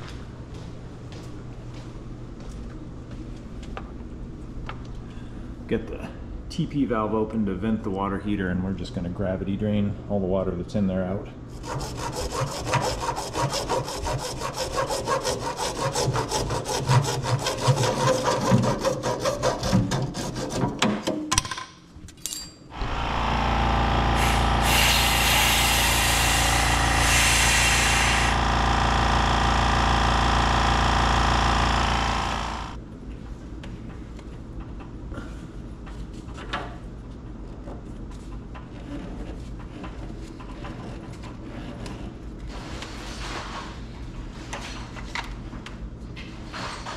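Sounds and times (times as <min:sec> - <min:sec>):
hand saw cutting plastic pipe: 0:11.6 - 0:21.0
air compressor running: 0:22.7 - 0:32.8
hiss of air: 0:24.2 - 0:28.4.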